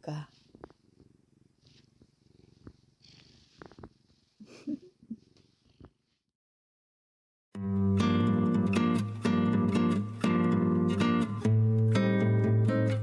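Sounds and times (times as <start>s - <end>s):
cat purring: 0.3s - 5.9s.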